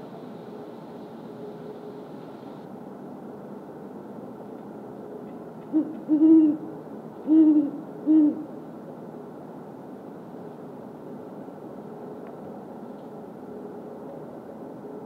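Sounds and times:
owl hooting: 5.7s - 8.6s.

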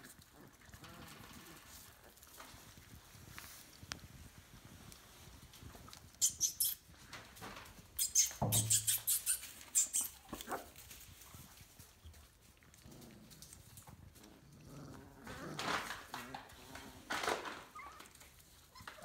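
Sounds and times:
puppies squeaking and yipping: 6.1s - 7.2s, 7.9s - 10.9s, 17.4s - 19.0s.

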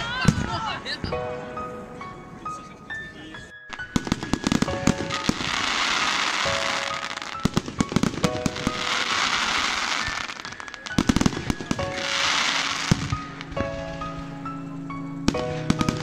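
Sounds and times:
music playing: 0.0s - 16.0s
firework shells bursting: 3.7s - 14.1s, 15.3s - 16.0s
crackling hissing firework showers: 3.7s - 16.0s.

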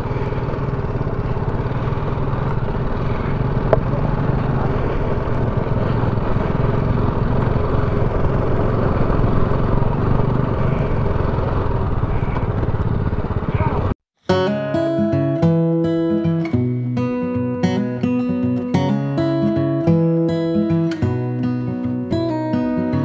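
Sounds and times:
engine running steadily: 0.0s - 14.0s.

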